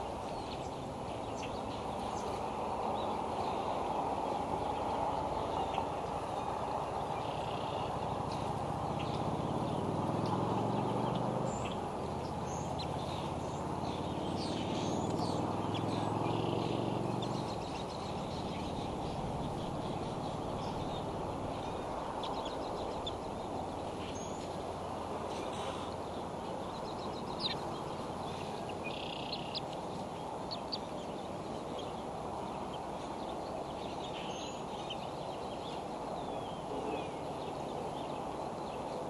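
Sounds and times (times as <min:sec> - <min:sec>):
low engine-like hum: 0:00.0 - 0:39.0.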